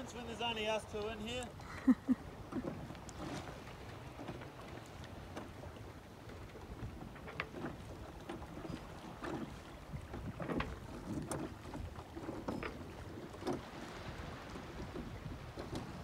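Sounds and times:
waves slapping against hull: 0.0s - 16.0s
wind on microphone: 8.5s - 16.0s.

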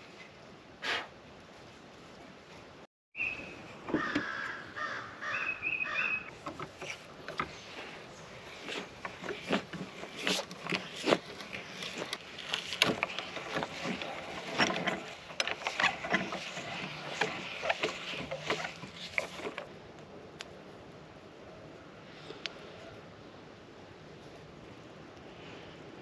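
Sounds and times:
auger bit boring wood: 6.4s - 19.7s.

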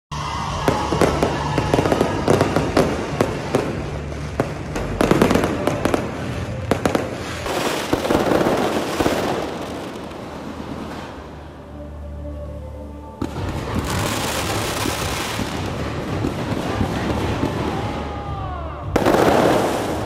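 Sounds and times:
fireworks hissing crackle: 0.2s - 11.7s, 13.2s - 20.0s
fireworks bangs and pops: 0.4s - 11.4s, 13.2s - 20.0s.

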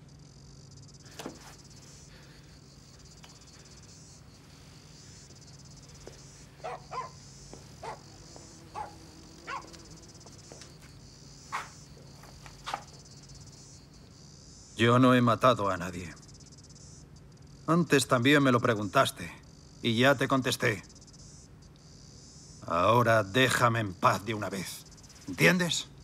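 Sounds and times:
crickets chirring: 0.0s - 26.0s
dog barking: 6.6s - 7.2s, 7.8s - 9.8s, 11.5s - 11.8s.

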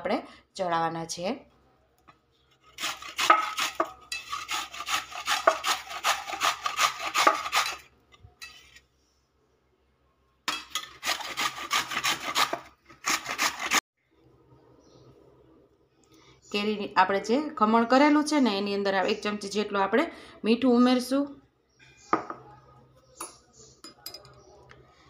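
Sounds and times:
mango rasping on a metal grater: 2.5s - 8.8s, 10.8s - 13.8s.

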